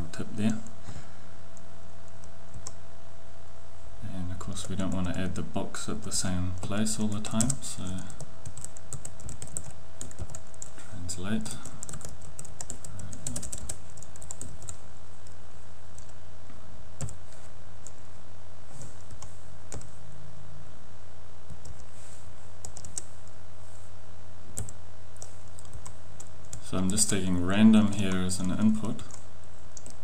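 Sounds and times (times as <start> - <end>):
low electrical hum: 0.0 - 30.0
typing on a computer keyboard: 6.6 - 10.7, 11.7 - 14.8, 22.6 - 23.1, 28.8 - 30.0.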